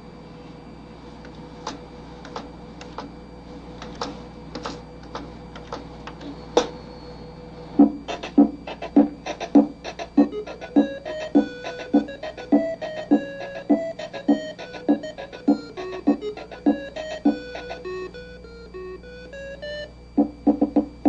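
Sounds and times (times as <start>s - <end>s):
simple computer-played tune with drums: 7.8s - 21.0s.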